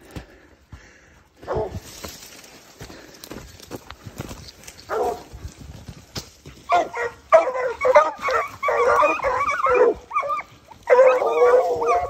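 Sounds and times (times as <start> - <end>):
hounds baying: 1.4 - 1.9, 4.8 - 5.5, 6.6 - 12.0
brush and twigs crackling underfoot: 1.4 - 12.0.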